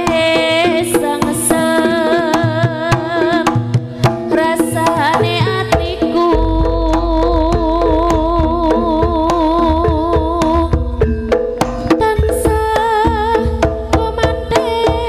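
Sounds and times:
hand drums beating: 0:00.0 - 0:15.0
ornamented melody line: 0:04.4 - 0:13.0
deep low gong hum: 0:06.4 - 0:11.6.

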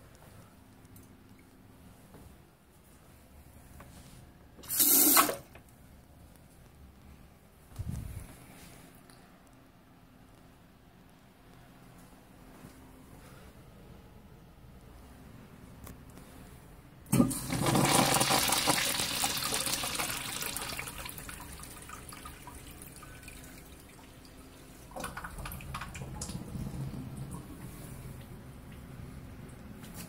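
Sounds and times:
urinal flushing: 0:04.6 - 0:05.5, 0:17.1 - 0:29.6.

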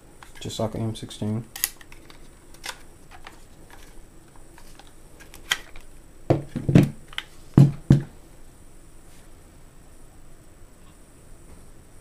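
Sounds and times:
rifle parts clicking: 0:01.5 - 0:03.9
parts knocking on table: 0:06.3 - 0:07.0, 0:07.6 - 0:08.1.

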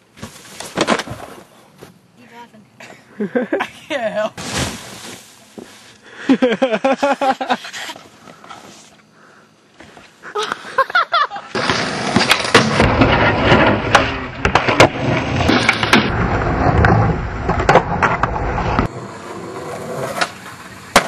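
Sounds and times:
skateboard wheels rolling on asphalt: 0:00.0 - 0:02.1, 0:09.7 - 0:21.0
skateboard popping and landing: 0:00.1 - 0:01.5, 0:11.5 - 0:21.0.

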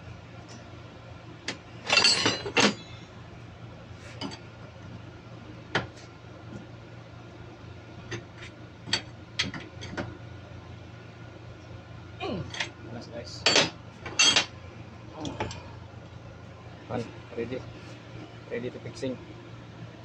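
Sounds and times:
steel tools clinking on metal: 0:13.4 - 0:14.5.

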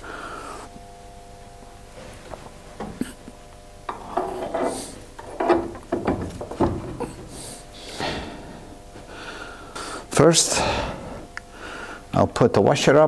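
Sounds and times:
sharp metal clunks: 0:03.9 - 0:07.2
metal knocking and scraping: 0:03.9 - 0:07.4.

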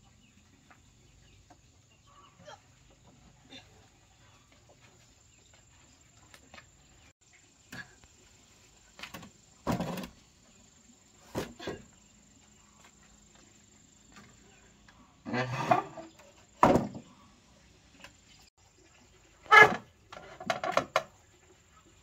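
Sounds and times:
knocks and thuds: 0:16.6 - 0:17.1.

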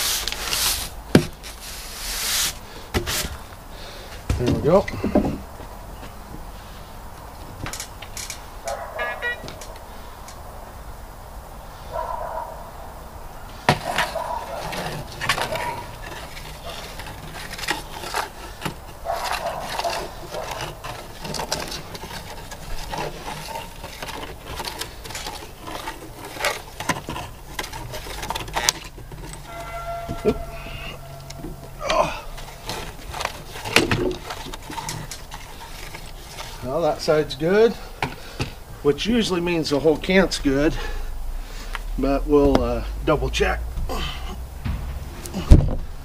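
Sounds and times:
boots and wood knocking: 0:00.6 - 0:01.6, 0:04.2 - 0:06.5, 0:13.6 - 0:36.6, 0:44.6 - 0:46.0
metal detector electronic tone: 0:29.4 - 0:32.1.

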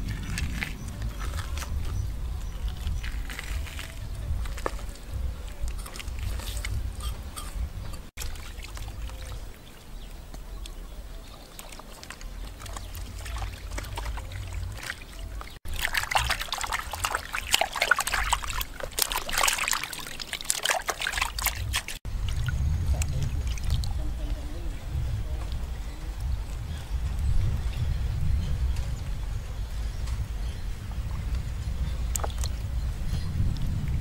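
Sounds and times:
low rumble: 0:00.0 - 0:08.1, 0:22.1 - 0:34.0
water splashing in a plastic basin: 0:08.1 - 0:24.6, 0:32.1 - 0:32.7.

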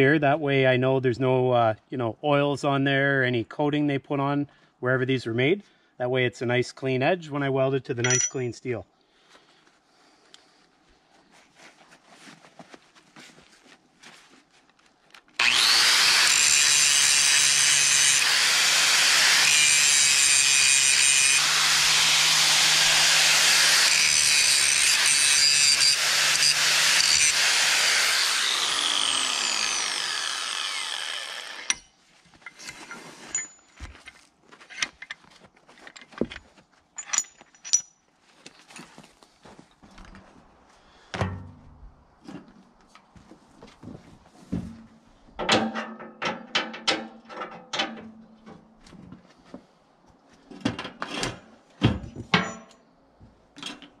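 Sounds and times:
angle grinder grinding steel: 0:15.4 - 0:31.9.

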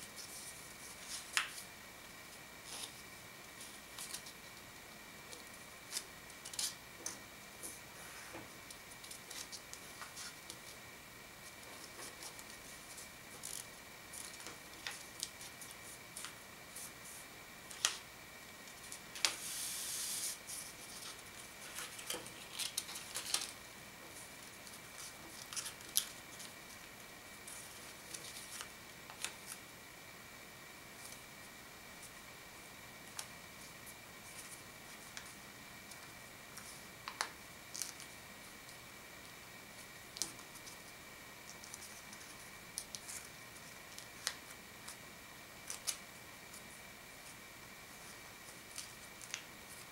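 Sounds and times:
paper rustling: 0:20.2 - 0:23.6
paper crinkling and creasing: 0:20.5 - 0:23.6, 0:24.4 - 0:26.8.

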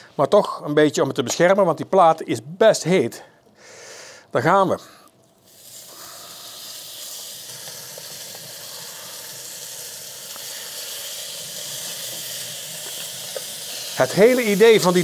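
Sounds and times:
small crackles: 0:04.8 - 0:15.0
meat sizzling on a grill plate: 0:05.4 - 0:15.0.

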